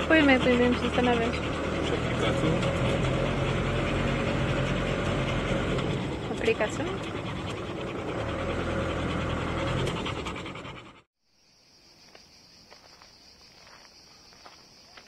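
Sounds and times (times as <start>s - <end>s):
dog panting: 0.0s - 3.1s, 3.9s - 11.1s
moving vehicle rumble: 0.0s - 11.1s.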